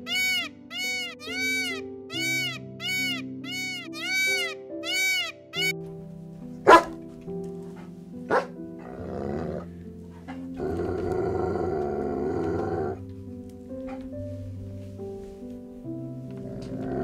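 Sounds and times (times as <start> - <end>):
background music: 0.0 - 17.0
dog barking sharply: 6.7 - 7.0, 8.3 - 8.5
dog growling: 7.8 - 13.0, 16.4 - 17.0.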